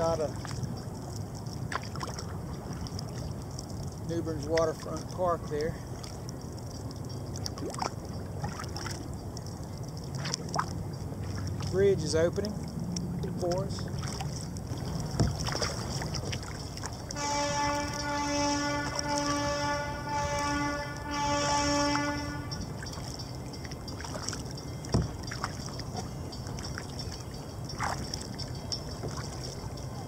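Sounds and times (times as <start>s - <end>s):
long horn blast: 17.1s - 22.8s.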